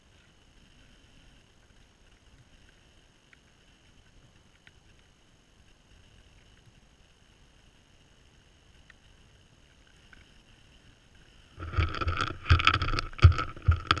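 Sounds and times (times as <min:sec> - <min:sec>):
muzzle scraping and bumping camera: 0:11.6 - 0:14.0.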